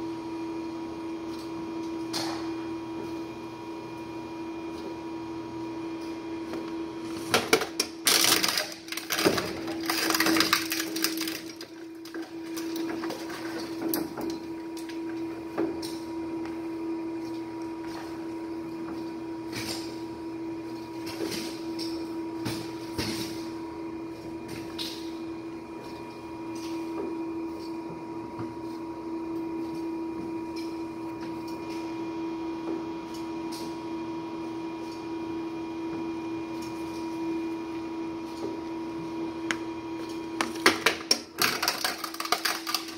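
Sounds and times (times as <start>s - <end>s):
shredder motor humming: 2.6s - 24.6s, 25.2s - 42.9s.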